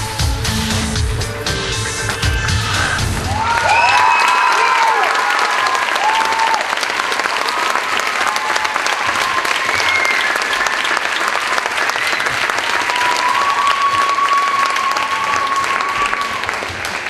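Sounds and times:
audience applauding: 2.0s - 17.0s
long whoops: 3.2s - 6.8s, 8.2s - 10.4s, 12.8s - 16.6s.

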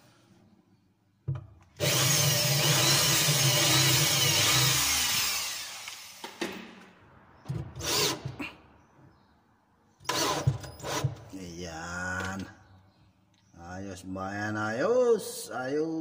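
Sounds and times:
electric drill boring into wood: 1.8s - 6.4s, 7.8s - 8.2s, 10.1s - 11.1s.

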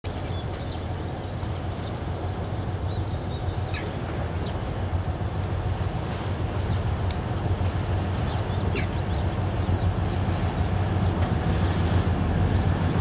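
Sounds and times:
diesel locomotive engine rumble: 0.0s - 13.0s
birds chirping: 0.2s - 6.0s.

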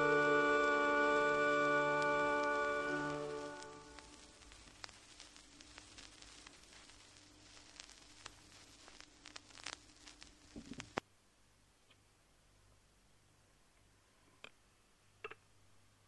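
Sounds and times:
pipe organ chord: 0.0s - 4.2s
vinyl record pops: 0.0s - 11.0s
vinyl record crackle: 0.0s - 11.1s.

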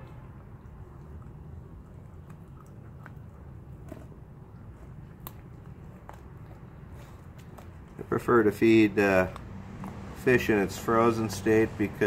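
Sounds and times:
puppies chewing fish: 0.5s - 12.0s
teeth crunching on bone: 0.9s - 8.2s.

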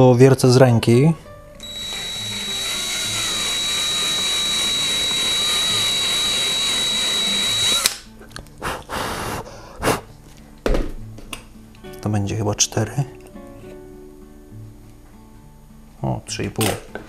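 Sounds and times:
drill boring into wood: 1.6s - 8.1s.

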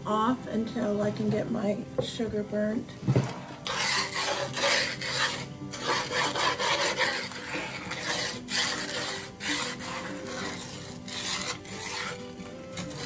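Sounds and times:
wooden spoon scraping sugar: 3.4s - 13.0s.

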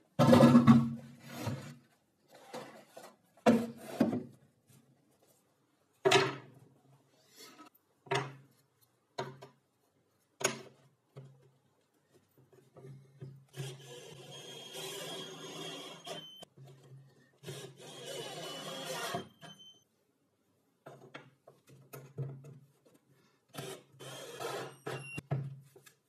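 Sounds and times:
cordless drill whining: 13.6s - 16.4s, 17.4s - 19.4s, 23.6s - 25.1s.

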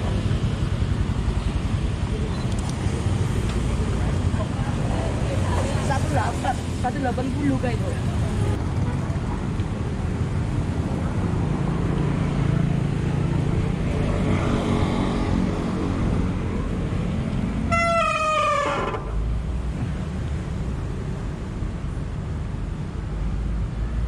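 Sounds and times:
wind and road noise: 0.0s - 24.0s
vehicle horn: 17.7s - 18.9s.

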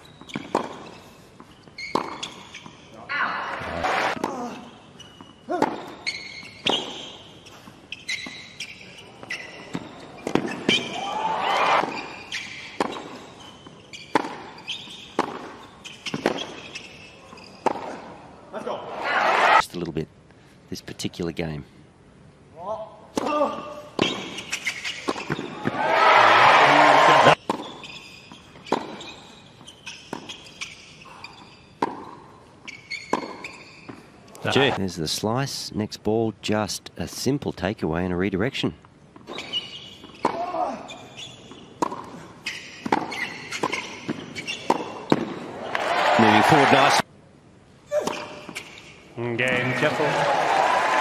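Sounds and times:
shoes squeaking on court: 0.0s - 11.0s, 11.6s - 18.3s, 23.9s - 34.8s, 39.0s - 47.0s, 47.9s - 49.1s
ball bouncing on hard court: 0.1s - 0.9s, 1.9s - 2.7s, 5.2s - 7.0s, 9.2s - 11.0s, 11.8s - 18.0s, 24.0s - 25.8s, 27.3s - 30.8s, 31.8s - 32.2s, 32.9s - 34.0s, 39.2s - 40.8s, 41.5s - 45.9s
crowd reaction: 3.2s - 4.2s, 11.0s - 11.8s, 18.8s - 19.6s, 25.7s - 27.4s, 45.6s - 47.0s, 49.5s - 51.0s
tennis ball struck: 14.1s - 14.4s, 42.8s - 45.4s.

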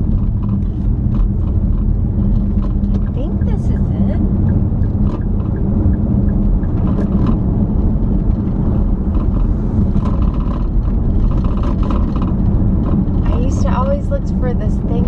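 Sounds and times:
car cabin road and engine rumble: 0.0s - 15.0s.

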